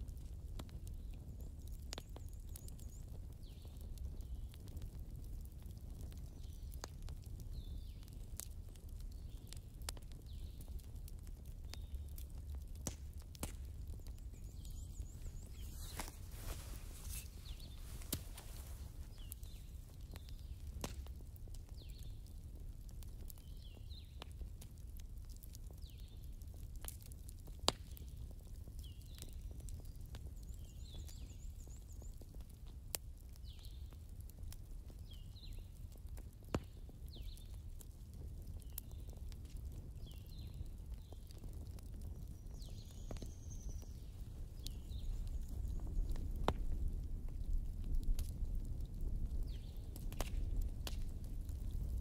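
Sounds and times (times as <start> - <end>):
small bird chirping: 13.9 - 20.6.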